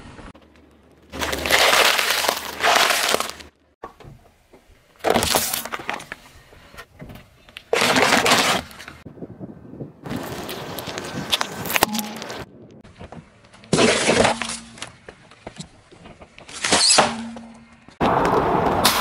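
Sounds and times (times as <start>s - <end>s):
tyre crushing objects on asphalt: 1.0s - 3.6s, 5.0s - 6.2s, 7.7s - 9.0s, 10.1s - 19.0s
lettuce crushed under tyre: 1.1s - 3.5s, 7.7s - 8.9s.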